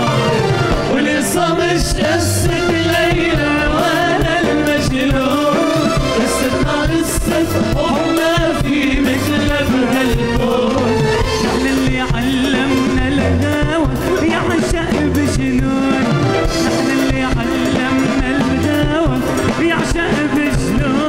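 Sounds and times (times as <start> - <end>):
live pop band: 0.0 - 21.0
man singing: 0.0 - 21.0.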